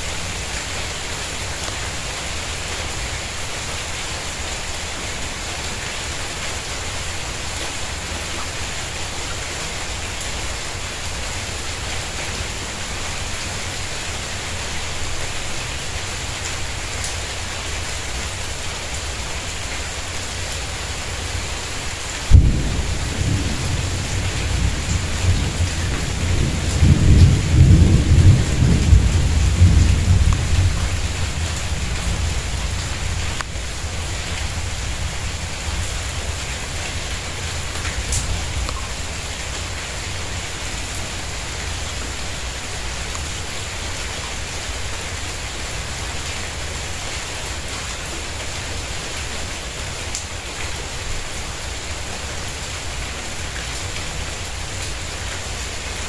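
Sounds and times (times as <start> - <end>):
rain on tiled courtyard: 0.0 - 56.0
thunderclap rumbling: 22.3 - 33.4.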